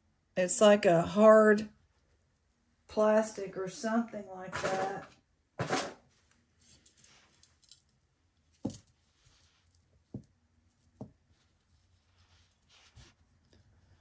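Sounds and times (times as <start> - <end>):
metal jewelry rattling and clinking: 6.6 - 11.9.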